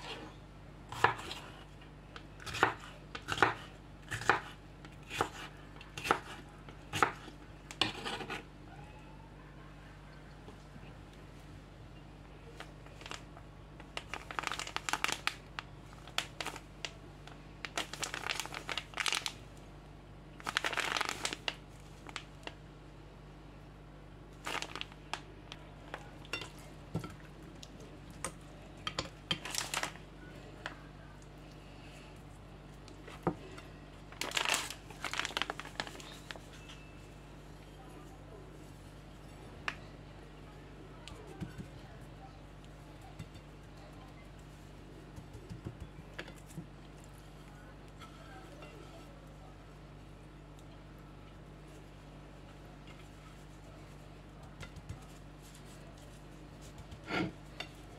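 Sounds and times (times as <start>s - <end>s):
plastic packet crinkling: 12.8s - 17.0s, 17.6s - 19.4s, 20.4s - 22.6s, 24.4s - 25.3s, 29.3s - 30.0s, 34.1s - 36.6s.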